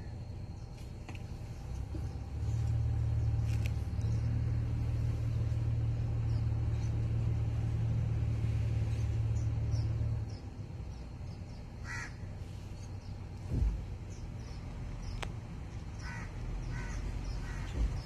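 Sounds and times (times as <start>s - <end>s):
low engine hum: 0.0s - 18.0s
small birds chirping: 0.0s - 18.0s
harsh bird call: 11.8s - 12.3s.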